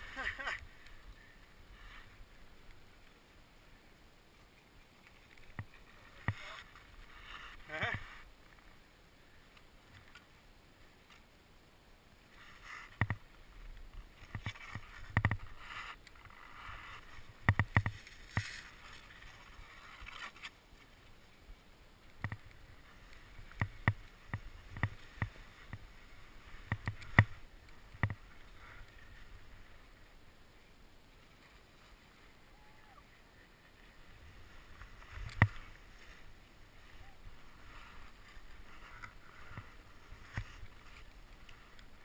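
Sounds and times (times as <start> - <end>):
ski gear clicking and knocking: 5.0 - 6.9, 12.7 - 13.3, 14.1 - 20.5, 22.1 - 25.9, 26.5 - 29.1, 34.8 - 36.1, 38.2 - 42.0
ski gear scraping in snow: 14.2 - 20.6, 33.4 - 42.0.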